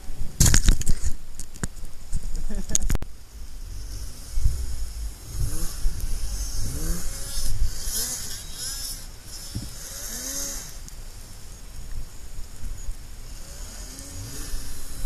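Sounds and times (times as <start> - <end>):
steady rushing noise: 0.0 - 15.0
snowmobile engines revving: 3.4 - 10.9, 13.2 - 15.0.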